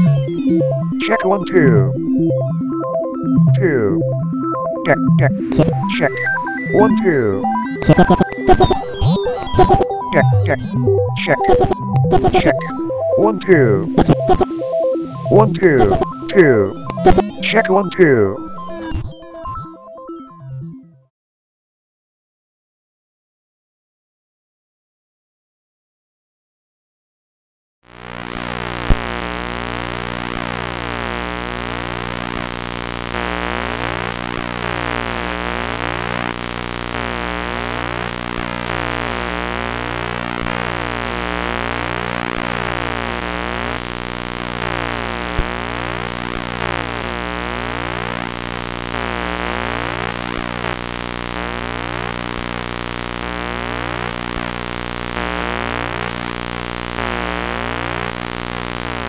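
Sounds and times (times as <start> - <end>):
harsh electronic buzzing drone: 4.9 - 17.5, 27.9 - 59.0.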